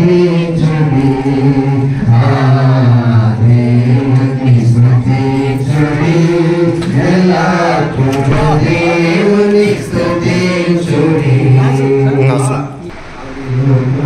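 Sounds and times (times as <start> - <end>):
voices chanting: 0.0 - 14.0
steady low drone: 12.9 - 14.0.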